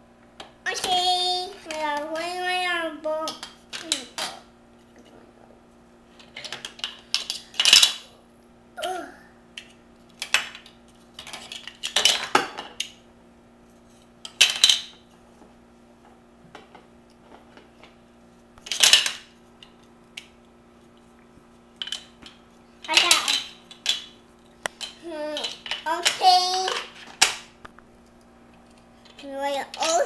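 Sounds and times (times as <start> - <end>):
plastic toy blocks clattering: 6.2 - 8.0, 11.2 - 12.4, 22.9 - 24.1.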